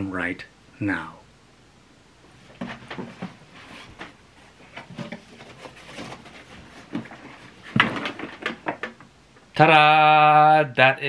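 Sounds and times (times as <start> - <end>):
wooden box knocks and scuffs: 4.8 - 9.0.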